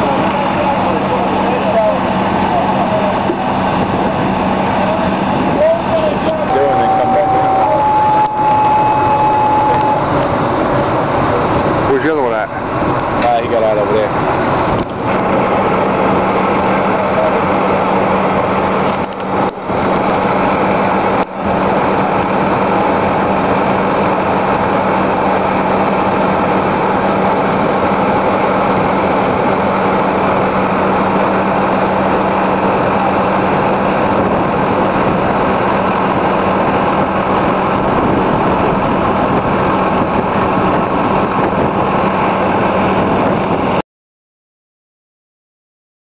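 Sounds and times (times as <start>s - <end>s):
fire truck engine droning: 0.0s - 43.8s.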